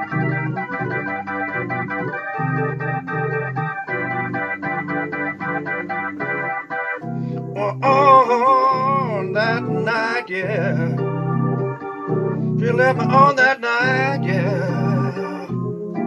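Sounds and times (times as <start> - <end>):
organ tone keyboard blues: 0.0 - 16.0
person singing: 7.6 - 11.1, 12.6 - 15.6.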